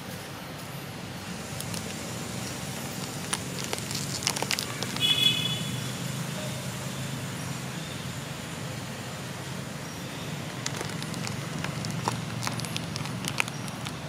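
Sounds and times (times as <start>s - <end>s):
sharp clicks and scuffles: 1.6s - 5.3s, 10.5s - 14.0s.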